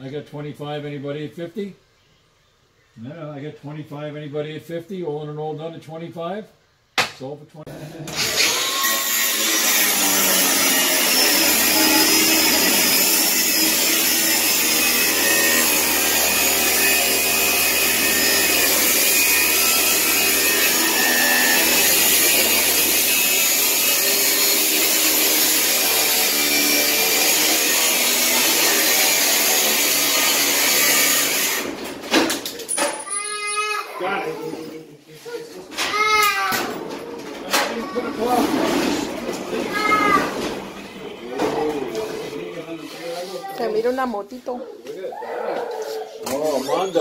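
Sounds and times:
angle grinder cutting metal: 0:08.1 - 0:31.9.

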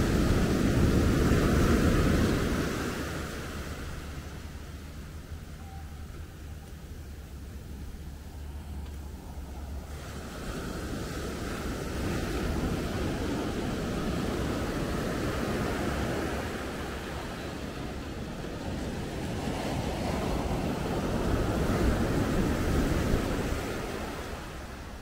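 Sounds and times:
wind buffeting microphone: 0:00.0 - 0:05.5, 0:06.5 - 0:25.0
sea waves washing onto beach: 0:00.0 - 0:25.0.

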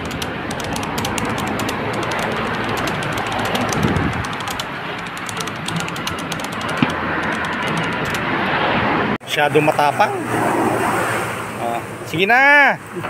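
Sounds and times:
keyboard typing clicks: 0:00.0 - 0:08.3
steady background noise: 0:00.0 - 0:13.0.

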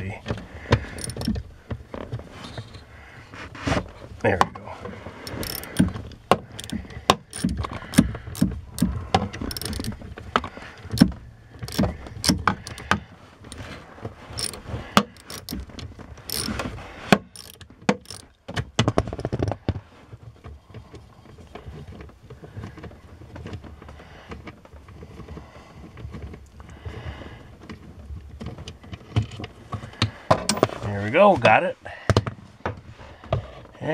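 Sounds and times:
tool handling sounds: 0:00.0 - 0:19.4, 0:29.0 - 0:31.5
socket wrench clicking and rattling: 0:00.8 - 0:01.5, 0:05.2 - 0:13.8, 0:14.4 - 0:16.7, 0:17.3 - 0:18.4.

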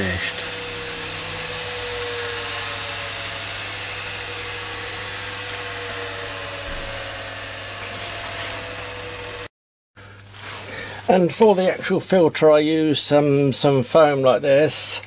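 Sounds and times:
polishing machine motor humming: 0:00.0 - 0:09.5.

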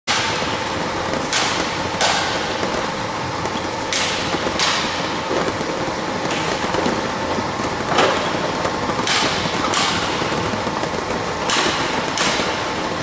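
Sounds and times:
sharp knocks: 0:00.1 - 0:02.9, 0:07.9 - 0:12.7.

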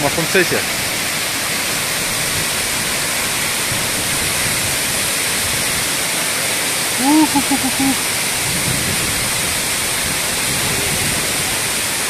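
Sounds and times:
waterfall pouring: 0:00.0 - 0:12.0.

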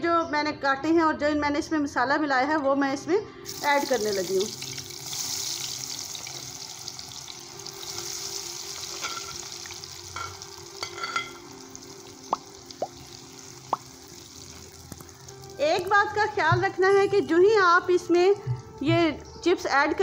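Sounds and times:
potato sticks sizzling in ghee: 0:03.5 - 0:16.4.

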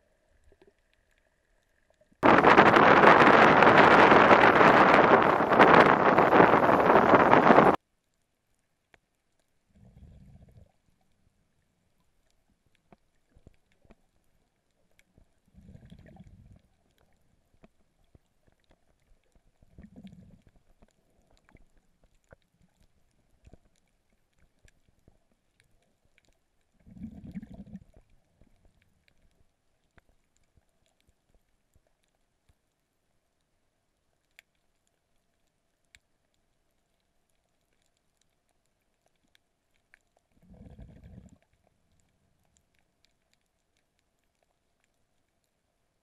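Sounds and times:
low underwater rumbles: 0:00.3 - 0:07.8, 0:09.6 - 0:30.2, 0:40.1 - 0:43.6
faint clicks: 0:06.4 - 0:09.6, 0:11.9 - 0:45.7.

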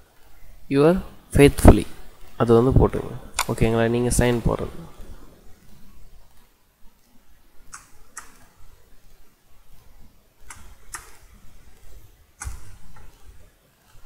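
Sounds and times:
keyboard keys clicking: 0:07.7 - 0:08.5, 0:10.4 - 0:11.2, 0:12.4 - 0:13.2.

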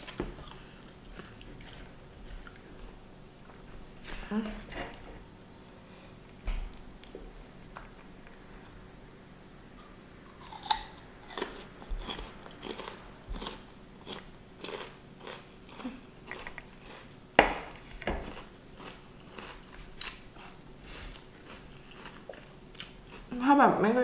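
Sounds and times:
crunchy chewing: 0:00.0 - 0:03.6, 0:10.3 - 0:17.2, 0:17.8 - 0:23.3.

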